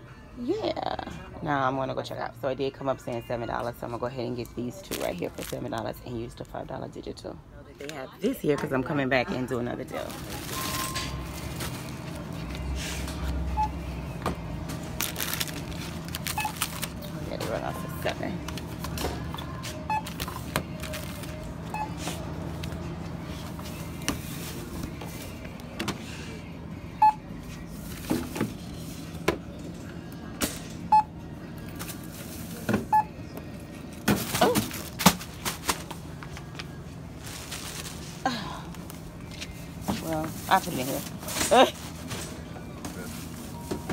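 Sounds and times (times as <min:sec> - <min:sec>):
checkout scanner beeps: 0:09.6 - 0:24.4, 0:26.9 - 0:29.2, 0:30.2 - 0:33.8, 0:42.0 - 0:43.9.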